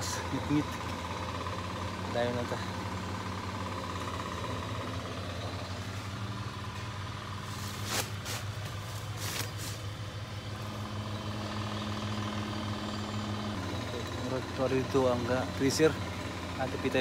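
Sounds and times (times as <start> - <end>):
engine droning: 0.0 - 17.0
leaves and twigs rustling: 7.4 - 10.8.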